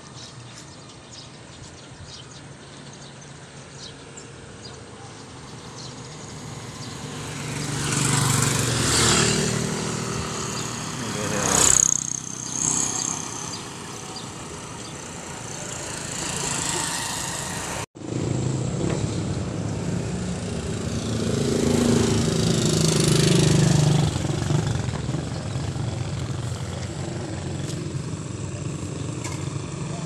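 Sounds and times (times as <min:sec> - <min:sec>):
motorcycles passing by: 0:00.1 - 0:30.0
nearby motorcycle engine running: 0:07.2 - 0:30.0.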